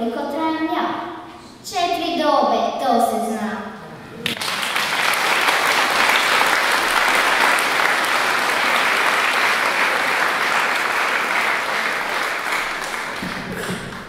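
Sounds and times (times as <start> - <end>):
large audience applauding: 4.2 - 14.0.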